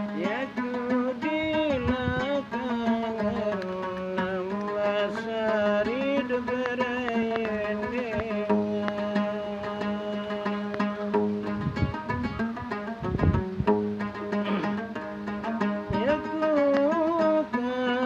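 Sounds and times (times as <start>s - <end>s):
man singing: 0.0s - 11.6s, 14.4s - 18.0s
plucked lute: 0.0s - 18.0s.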